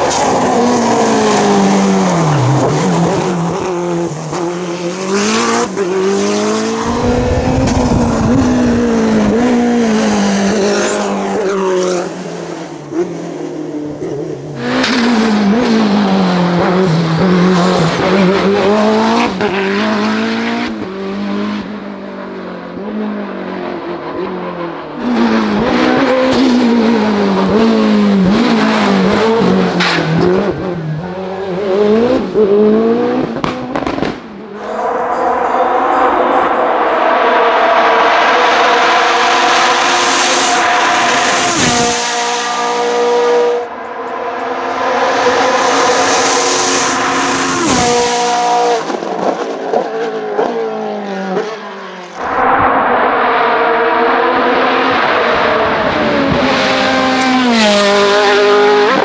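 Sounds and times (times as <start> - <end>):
race car engine revving: 0.0 - 21.7.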